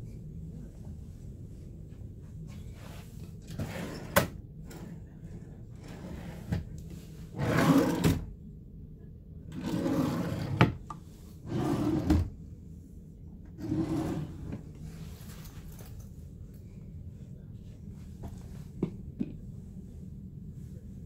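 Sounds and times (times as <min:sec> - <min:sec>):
drawers sliding: 0:03.4 - 0:05.0, 0:05.8 - 0:06.7, 0:07.3 - 0:08.3, 0:09.5 - 0:10.8, 0:11.4 - 0:12.3, 0:13.6 - 0:14.6.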